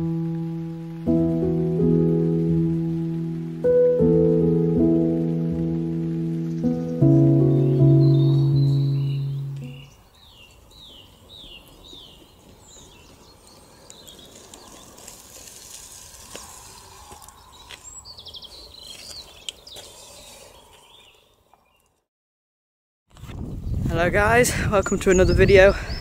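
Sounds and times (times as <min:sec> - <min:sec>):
songbirds chirping: 0:00.0 - 0:15.4, 0:16.4 - 0:22.0, 0:23.6 - 0:26.0
bird trill: 0:06.4 - 0:14.3.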